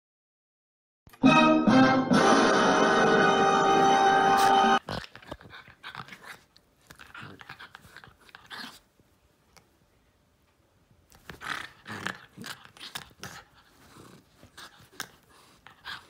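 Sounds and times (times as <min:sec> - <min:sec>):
dog growling and snarling: 0:03.8 - 0:08.8, 0:11.2 - 0:16.0.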